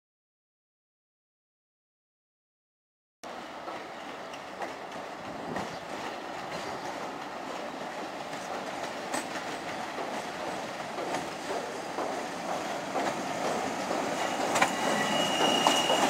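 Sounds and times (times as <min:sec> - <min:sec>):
train engine and wheels rumbling: 0:03.2 - 0:16.0
wheels clacking over rail joints: 0:03.6 - 0:16.0.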